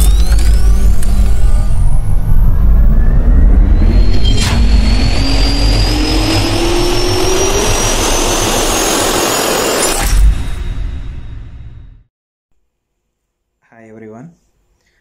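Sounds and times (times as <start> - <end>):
jet engine spooling up: 0.0 - 11.4
impact hit: 0.0 - 12.0.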